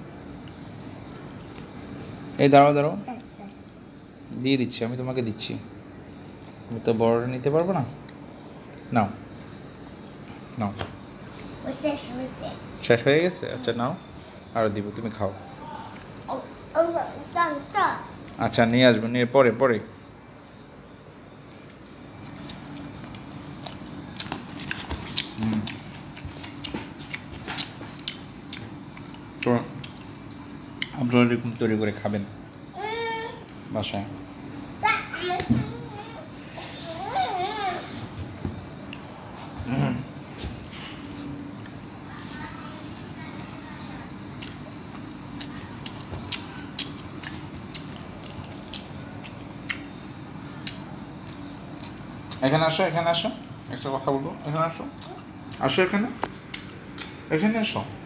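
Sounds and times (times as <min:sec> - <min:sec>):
low background hum: 0:00.0 - 0:58.0
child chewing food: 0:00.1 - 0:02.4, 0:03.1 - 0:04.4, 0:06.0 - 0:06.8, 0:07.9 - 0:12.8, 0:15.7 - 0:18.4, 0:20.2 - 0:31.8, 0:32.5 - 0:52.4, 0:54.4 - 0:57.2.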